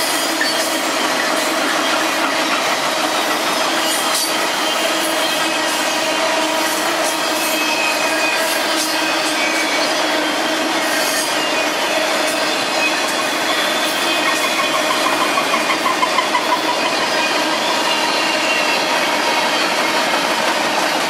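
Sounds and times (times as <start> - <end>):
freight train wheels on rail: 0.0 - 21.0
wheels clicking over rail joint: 12.2 - 21.0.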